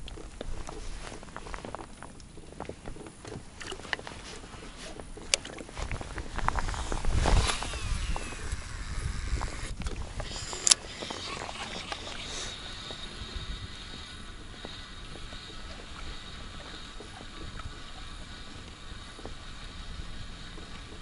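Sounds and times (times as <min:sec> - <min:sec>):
water lapping against boat: 0:00.0 - 0:08.7, 0:09.6 - 0:21.0
wind on microphone: 0:00.0 - 0:21.0
reel spool whirring: 0:03.9 - 0:21.0
fishing rod whoosh: 0:05.8 - 0:12.7.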